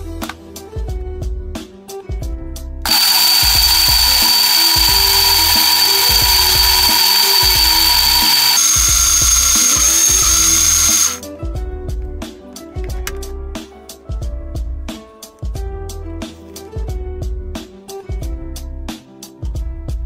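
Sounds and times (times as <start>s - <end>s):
blender motor grinding: 2.9s - 11.2s.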